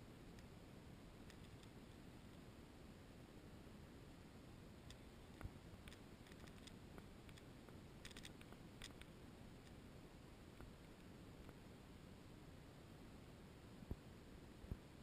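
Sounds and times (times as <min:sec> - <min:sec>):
faint steady hiss: 0:00.0 - 0:15.0
faint clicks: 0:01.2 - 0:02.4.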